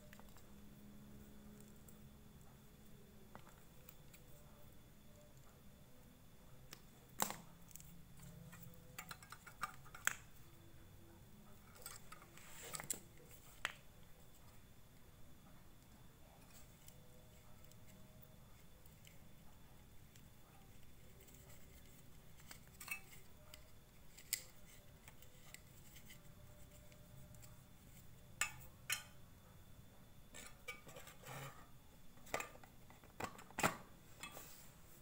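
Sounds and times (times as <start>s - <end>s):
plastic parts clicking and knocking: 8.2s - 10.3s.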